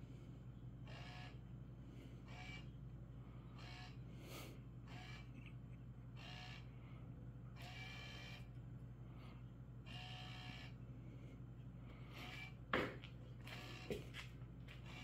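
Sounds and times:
steady low hum: 0:00.0 - 0:15.0
small motor whirring: 0:00.8 - 0:01.4, 0:02.2 - 0:02.8, 0:03.5 - 0:04.1, 0:04.8 - 0:05.5, 0:06.1 - 0:06.7, 0:07.5 - 0:08.6, 0:09.8 - 0:10.8, 0:12.0 - 0:12.6, 0:13.4 - 0:14.2, 0:14.8 - 0:15.0.

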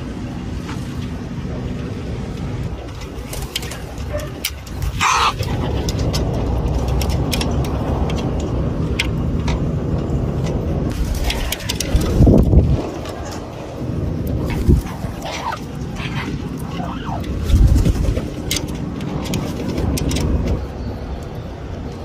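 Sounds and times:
city background rumble: 0:00.0 - 0:22.0
wings flapping: 0:02.8 - 0:07.8, 0:10.9 - 0:20.6.

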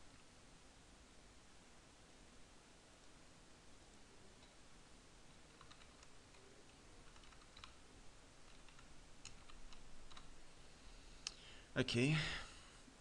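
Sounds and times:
low background hiss: 0:00.0 - 0:13.0
faint keyboard typing: 0:05.3 - 0:10.4.

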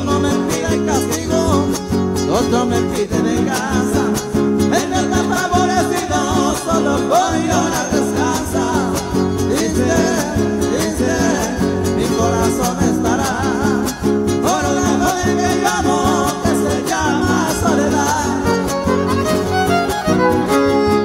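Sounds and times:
strummed guitar chords: 0:00.0 - 0:21.0
violin melody with vibrato: 0:18.4 - 0:21.0.

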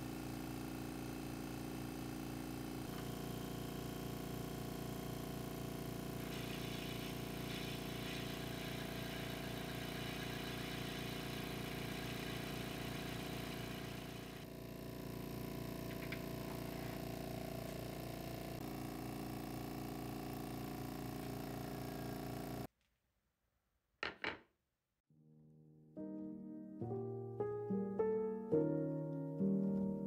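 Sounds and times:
wood lathe motor hum: 0:00.3 - 0:22.7
drill bit cutting wood hiss: 0:06.2 - 0:14.5.

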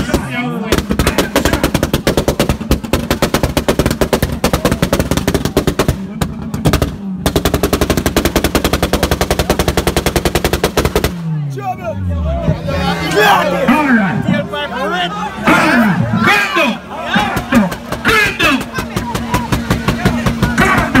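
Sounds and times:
exhaust crackling pops: 0:00.0 - 0:11.3, 0:17.2 - 0:21.0
engine bouncing on rev limiter: 0:00.0 - 0:14.5, 0:16.8 - 0:21.0.

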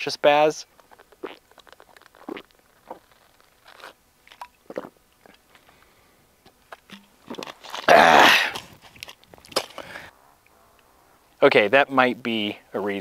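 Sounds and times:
plastic bottle crinkling: 0:00.8 - 0:05.9, 0:06.7 - 0:09.9
person gulping from bottle: 0:01.1 - 0:05.4, 0:07.3 - 0:08.7.

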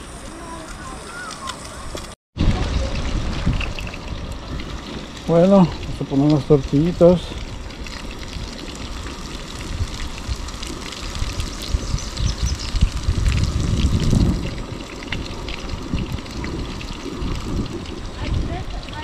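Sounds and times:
wind rumbling on microphone: 0:00.0 - 0:19.0
tortillas crackling on griddle: 0:00.3 - 0:18.2.

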